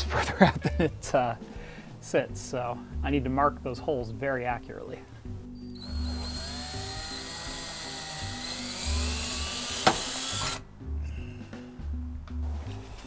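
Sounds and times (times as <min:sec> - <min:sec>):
background music with bass line: 0:00.0 - 0:13.0
cordless drill running: 0:05.7 - 0:10.6.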